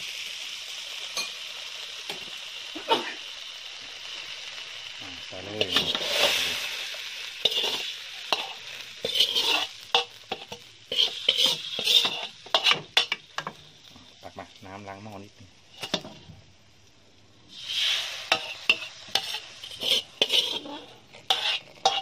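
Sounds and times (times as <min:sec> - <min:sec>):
paste sizzling: 0:00.0 - 0:22.0
spatula scraping metal wok: 0:05.4 - 0:13.6, 0:15.7 - 0:16.2, 0:17.5 - 0:22.0.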